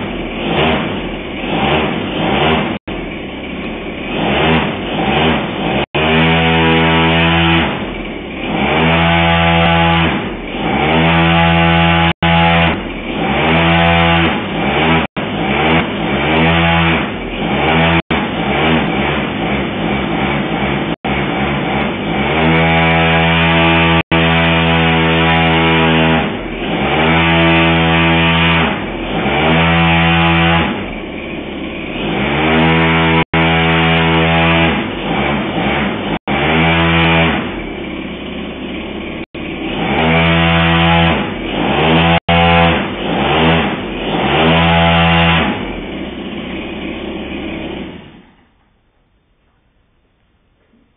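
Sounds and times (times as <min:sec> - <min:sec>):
model aircraft engine revving: 0:00.0 - 0:48.5.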